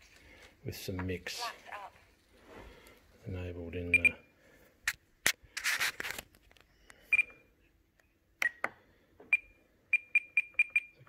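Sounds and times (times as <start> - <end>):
radio transmitter beeps: 3.9 - 4.3
rubbing scrape: 5.5 - 6.2.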